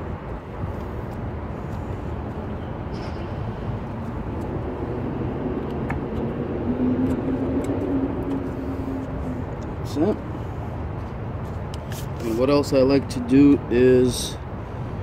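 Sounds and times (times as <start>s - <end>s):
low outdoor rumble: 0.0s - 11.6s.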